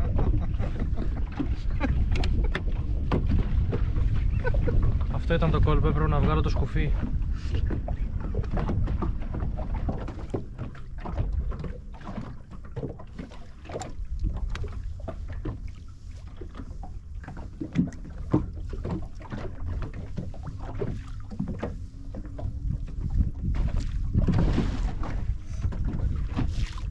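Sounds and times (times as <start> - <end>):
knocks and splashes: 0.0 - 26.9
waves lapping against boat: 0.0 - 26.9
wind rumbling on microphone: 0.0 - 26.9.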